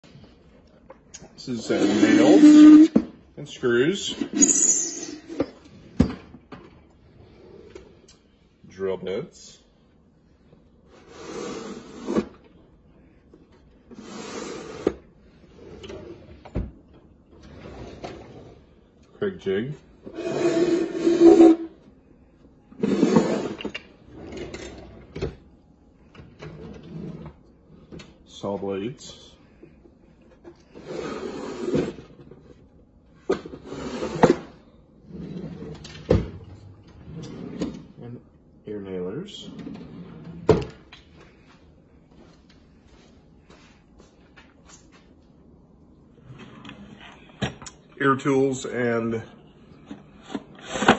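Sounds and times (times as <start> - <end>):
wooden drawer sliding: 22.8 - 25.4.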